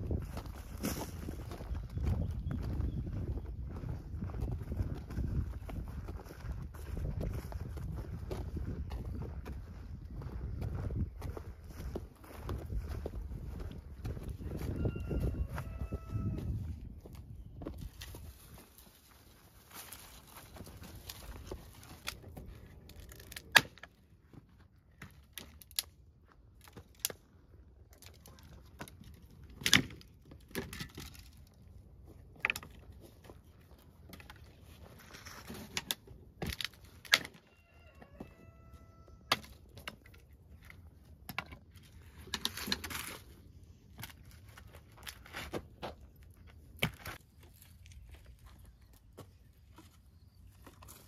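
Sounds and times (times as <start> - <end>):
scuffing and rustling: 0.1 - 22.6
dry branches snapping: 17.8 - 24.0, 25.0 - 26.0, 26.6 - 27.2, 35.2 - 37.4, 39.3 - 40.2.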